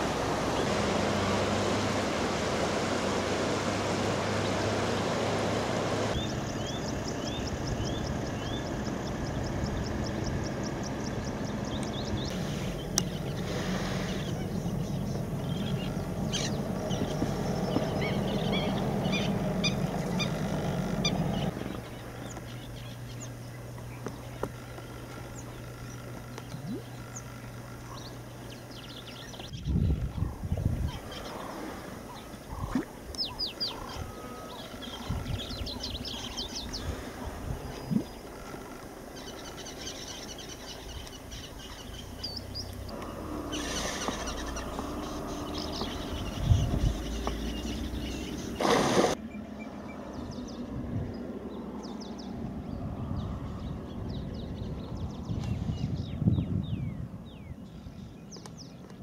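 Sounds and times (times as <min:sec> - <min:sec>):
river water flowing: 0:00.0 - 0:07.1
birds chirping: 0:00.0 - 0:59.0.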